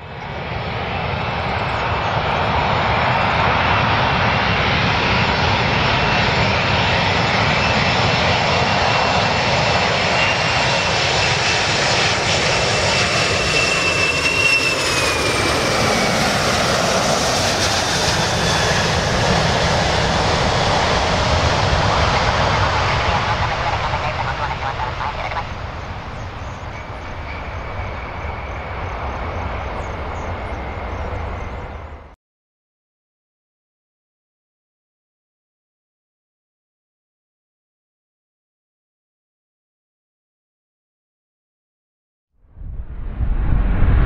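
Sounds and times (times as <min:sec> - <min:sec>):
jet engines roaring: 0:00.0 - 0:32.2
high jet whine dropping in pitch: 0:10.3 - 0:32.1, 0:42.5 - 0:44.0.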